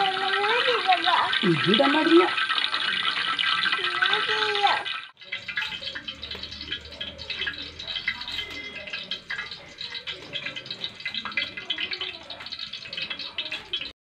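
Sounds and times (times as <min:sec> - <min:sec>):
food sizzling in hot oil: 0:00.0 - 0:13.9.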